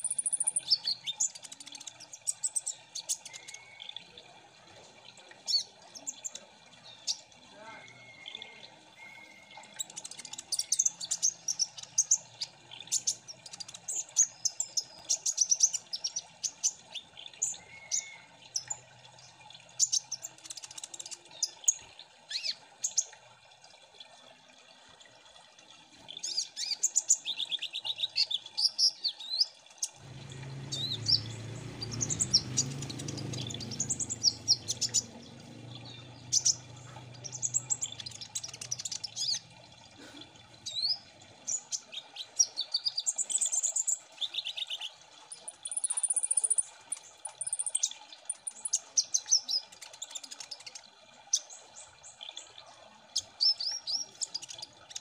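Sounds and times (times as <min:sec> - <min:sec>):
sunbirds chirping and trilling: 0:26.2 - 0:55.0.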